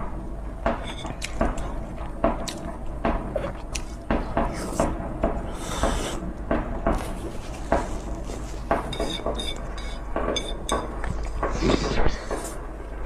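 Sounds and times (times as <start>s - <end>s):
close-up chewing: 3.3s - 4.9s
chopsticks scraping a plate: 7.5s - 10.8s.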